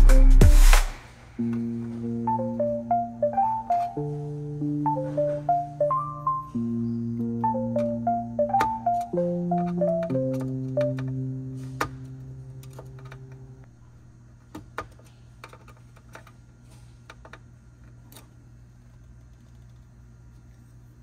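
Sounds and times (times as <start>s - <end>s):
background music held notes: 0.0s - 13.7s.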